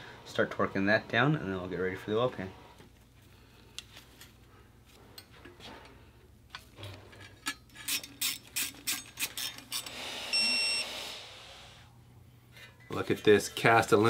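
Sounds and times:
hand ratchet clicking: 7.8 - 10.0
torque wrench high beep: 9.8 - 11.4.

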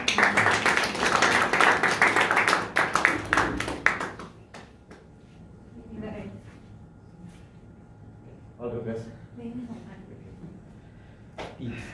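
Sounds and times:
small group clapping: 0.0 - 5.2.

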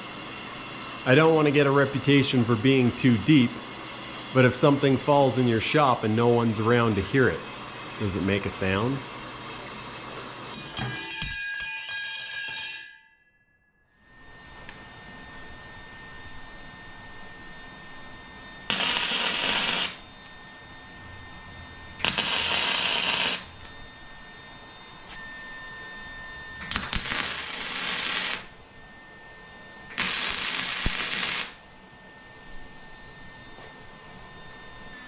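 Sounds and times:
arc welding crackling hiss: 0.0 - 10.7, 18.7 - 20.4, 22.0 - 23.8, 26.6 - 28.5, 29.9 - 31.6.

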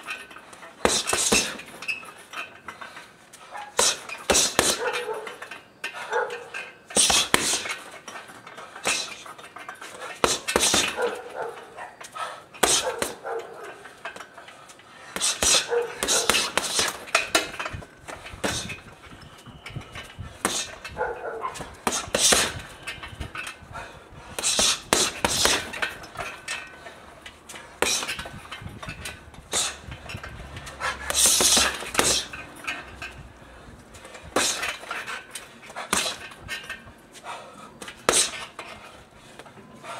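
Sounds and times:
boxing gloves punching heavy bag: 0.8 - 2.0, 3.6 - 5.4, 7.0 - 8.0, 8.8 - 11.5, 12.5 - 13.4, 15.1 - 19.1, 19.8 - 26.4, 27.8 - 32.4, 33.9 - 38.6
chain rattling: 1.6 - 23.7, 25.4 - 36.9
boxer breathing out hard: 23.6 - 25.6, 33.2 - 34.8, 37.1 - 39.9.

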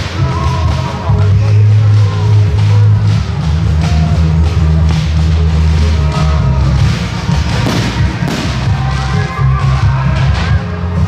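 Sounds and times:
loud music with heavy bass: 0.0 - 11.0
firework bang: 7.6 - 8.8.

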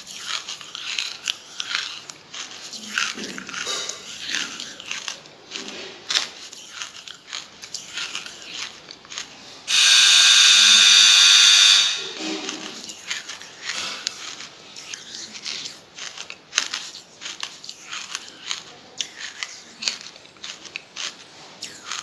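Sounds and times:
charcoal being chewed and crunched: 0.0 - 22.0
harsh rasping buzz: 9.7 - 12.8.

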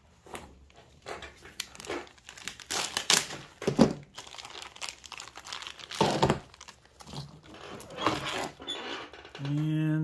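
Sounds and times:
plastic bag crinkling: 1.3 - 8.6.

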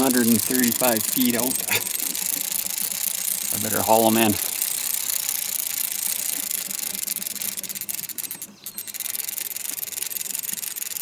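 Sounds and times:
fishing reel whirring: 0.0 - 11.0.

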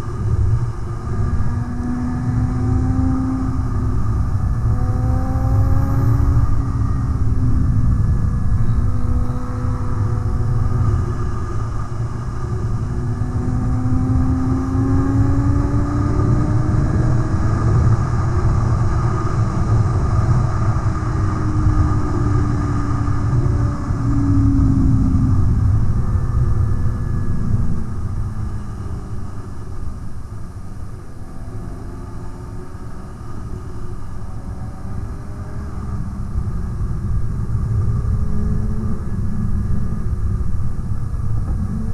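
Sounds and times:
wind rushing on microphone: 0.0 - 41.9
motorcycle engine: 1.2 - 29.8.

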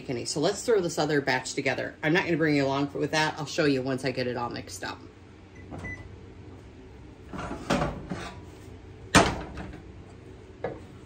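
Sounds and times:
kitchen items knocking and clattering: 7.3 - 8.4, 9.1 - 9.9.

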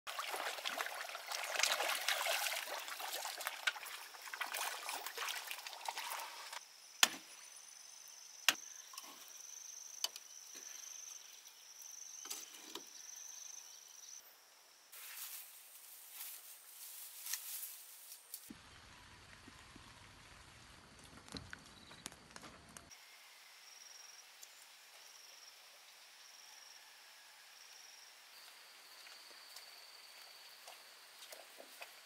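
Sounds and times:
crackling splashing noise: 0.1 - 6.6, 18.5 - 22.4.

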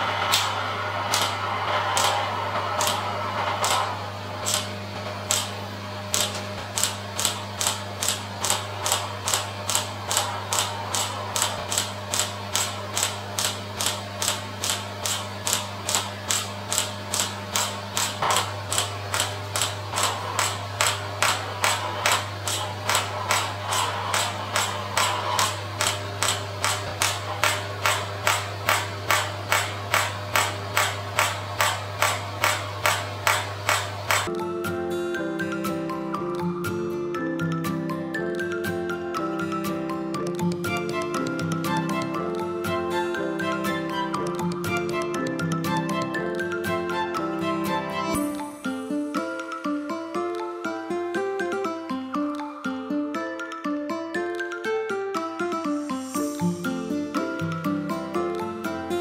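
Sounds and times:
steady low hum: 0.0 - 34.3
rapid mechanical clicks: 0.1 - 34.3.

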